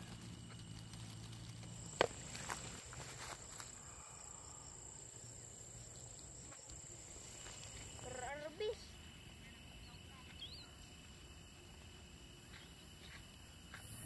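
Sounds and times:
grass stalks rustling: 0:00.0 - 0:04.0, 0:05.7 - 0:08.4
crickets trilling: 0:00.0 - 0:14.0.

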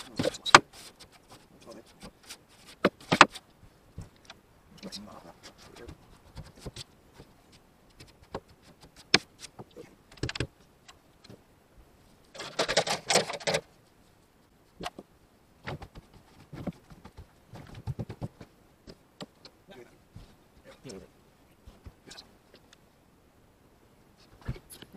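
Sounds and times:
rapid clattering and rustling: 0:12.2 - 0:19.5
knocks and clicks of objects: 0:14.8 - 0:19.6.

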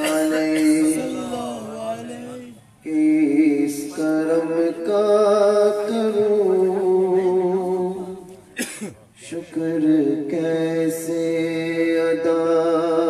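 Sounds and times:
man singing into microphone: 0:00.0 - 0:08.2, 0:09.2 - 0:13.0.

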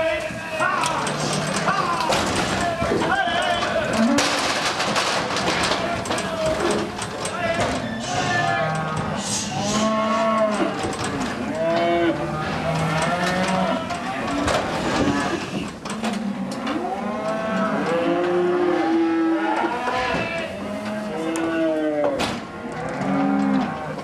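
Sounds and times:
calves bawling: 0:00.0 - 0:24.0.

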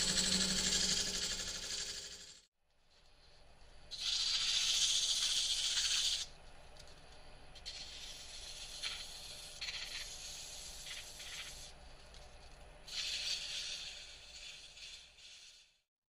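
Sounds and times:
sandpaper hissing on spinning wood: 0:03.9 - 0:06.3, 0:07.6 - 0:11.8, 0:12.9 - 0:15.8.

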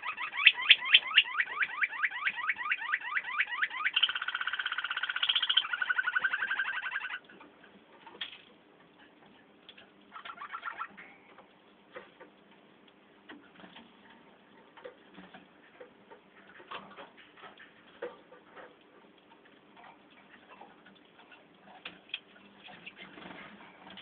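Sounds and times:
canaries calling: 0:00.0 - 0:07.4, 0:10.1 - 0:11.2.

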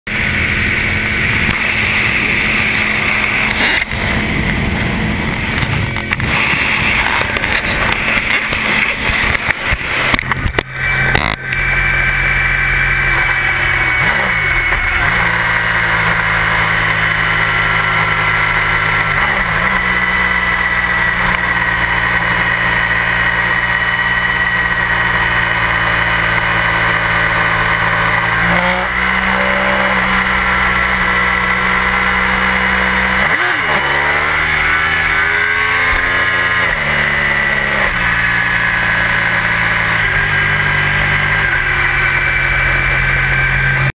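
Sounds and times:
motorcycle engine hum: 0:00.0 - 0:43.9
wind noise on camera: 0:00.3 - 0:11.7.

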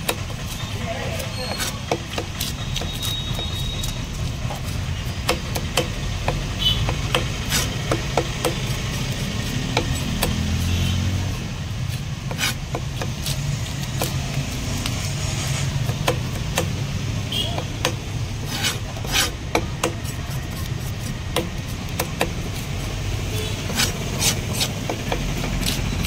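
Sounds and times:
knife knocking on stone block: 0:05.2 - 0:08.7, 0:21.3 - 0:22.6.

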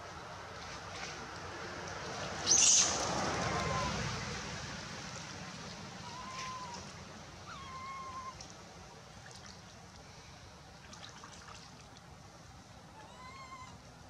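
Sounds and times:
baby monkey crying: 0:03.4 - 0:04.0, 0:06.0 - 0:06.9, 0:07.5 - 0:08.4, 0:13.0 - 0:13.8
shallow water splashing: 0:08.4 - 0:12.2.

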